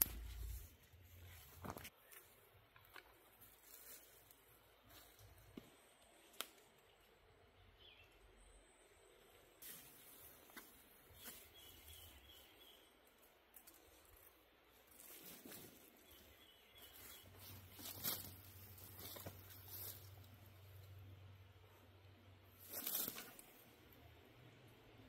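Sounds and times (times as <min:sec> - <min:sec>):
faint bird chirps: 0:06.8 - 0:18.0
rustles of cord and tarp: 0:14.8 - 0:20.3, 0:22.6 - 0:23.6.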